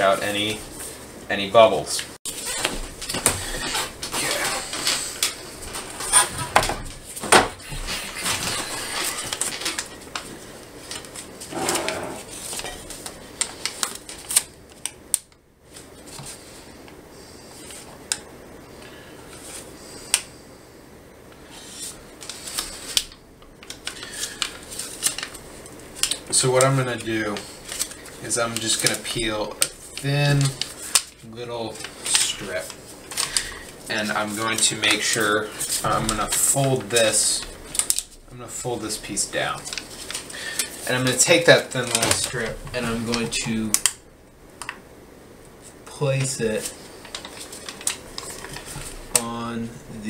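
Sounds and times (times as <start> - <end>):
adhesive tape crackling and rustling: 6.9 - 11.5, 12.2 - 16.4, 21.5 - 44.8, 45.4 - 49.5.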